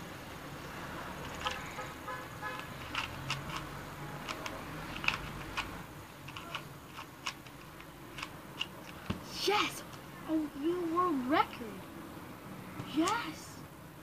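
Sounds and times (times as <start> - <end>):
puzzle cube plastic clicks: 1.2 - 1.7, 2.6 - 9.1.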